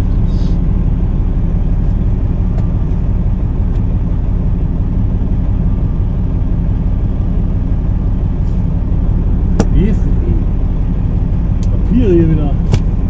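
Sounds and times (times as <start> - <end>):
diesel truck engine rumbling: 0.0 - 13.0.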